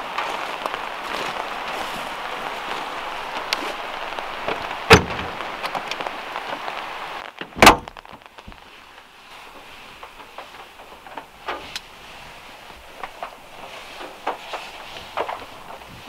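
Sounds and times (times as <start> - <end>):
steady rain: 0.0 - 16.0
car door slamming: 4.9 - 5.4, 7.4 - 8.0
car door latch clicking: 7.6 - 7.9.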